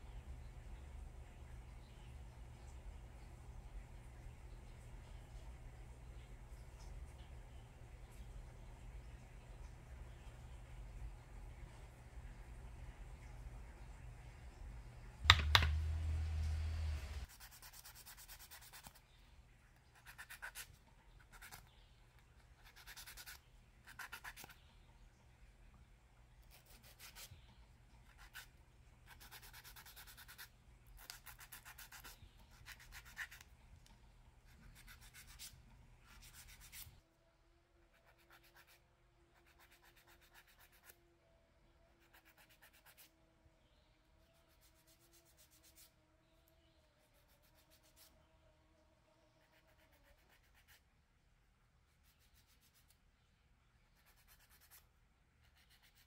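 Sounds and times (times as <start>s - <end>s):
loud knock: 15.2s - 16.0s.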